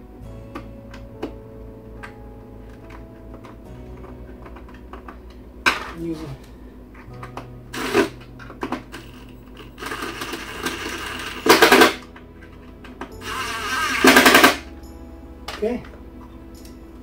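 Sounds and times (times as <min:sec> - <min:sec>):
impact driver driving screws: 0:09.8 - 0:12.0, 0:13.2 - 0:14.6.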